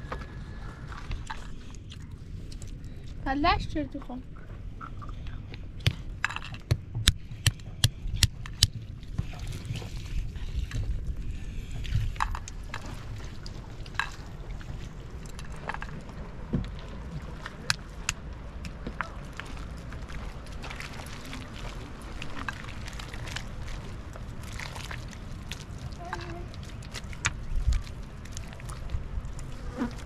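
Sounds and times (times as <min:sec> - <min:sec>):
low steady rumble: 0:00.0 - 0:30.0.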